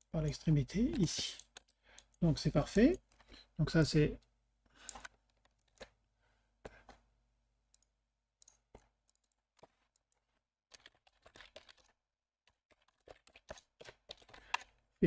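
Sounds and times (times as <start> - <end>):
computer mouse clicks: 7.7 - 10.1.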